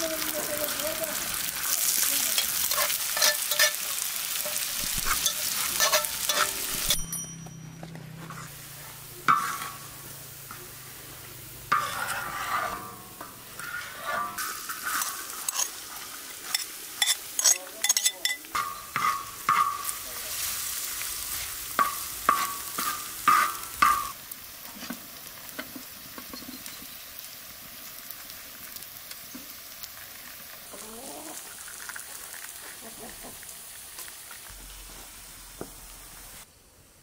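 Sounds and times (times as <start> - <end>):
food sizzling in hot oil: 0.0 - 7.2, 8.4 - 36.5
metal spoon clinking and scraping: 2.3 - 8.5, 9.2 - 9.9, 11.7 - 20.0.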